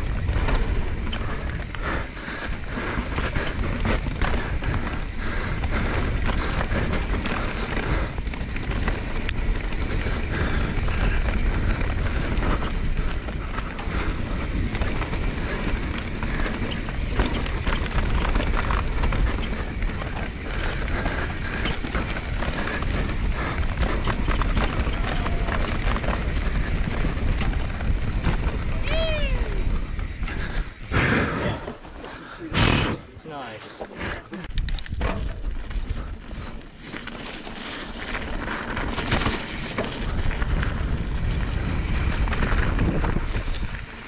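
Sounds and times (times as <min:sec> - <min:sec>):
wind on microphone: 0:00.0 - 0:31.7, 0:40.0 - 0:44.0
tyres rumbling on dirt: 0:00.0 - 0:44.0
bike clattering over rocks: 0:03.0 - 0:28.9, 0:36.8 - 0:44.0.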